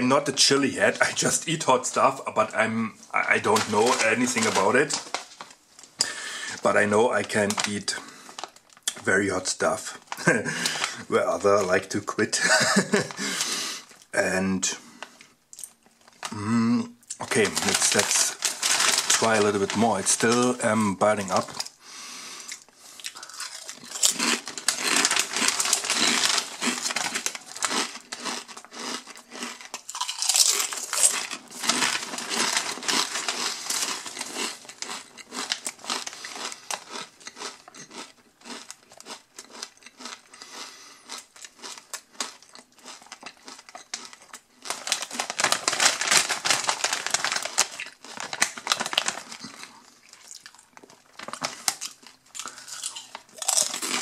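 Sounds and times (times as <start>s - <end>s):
chip bag rustling and crackling: 3.2s - 5.9s, 6.5s - 9.0s, 10.0s - 11.6s, 17.2s - 21.7s, 23.0s - 40.4s, 41.1s - 54.0s
potato chips crunching while chewed: 3.2s - 9.0s, 15.1s - 16.4s, 17.1s - 21.8s, 22.5s - 54.0s.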